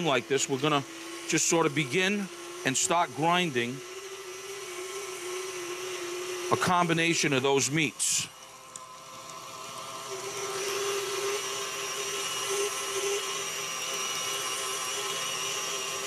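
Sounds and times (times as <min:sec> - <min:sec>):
mixer motor whirring: 0:00.0 - 0:16.0.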